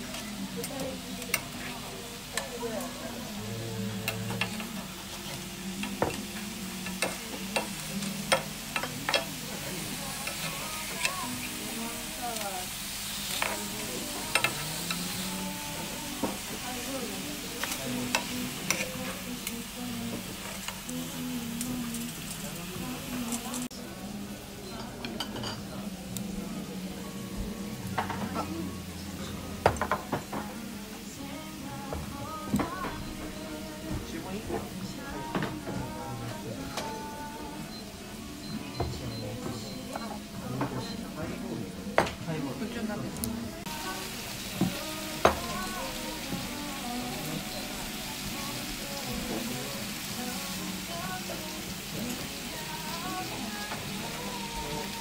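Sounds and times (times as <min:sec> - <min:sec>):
food sizzling in a pan: 0:00.0 - 0:55.0
metal tongs clacking on pan: 0:05.3 - 0:09.4, 0:14.3 - 0:15.1, 0:17.6 - 0:19.6.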